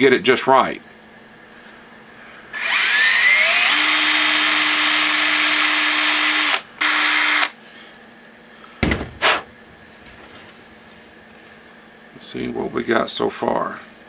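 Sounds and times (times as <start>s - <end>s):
cordless drill whining: 2.6s - 7.6s.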